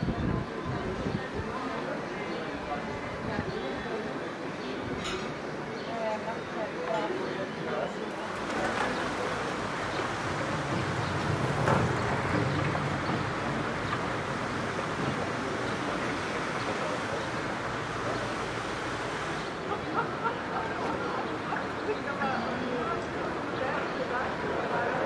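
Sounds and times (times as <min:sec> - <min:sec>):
faint distant voices: 0:00.0 - 0:25.0
rushing outdoor noise: 0:00.0 - 0:25.0.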